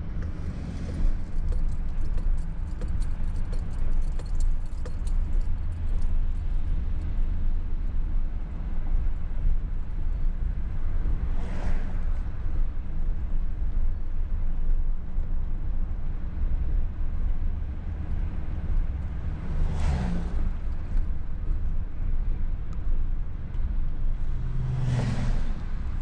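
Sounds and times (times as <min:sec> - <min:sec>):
vehicles passing whoosh: 0:00.0 - 0:02.5, 0:11.0 - 0:12.5, 0:19.1 - 0:21.0, 0:24.0 - 0:26.0
car driving rumble from inside: 0:00.0 - 0:26.0.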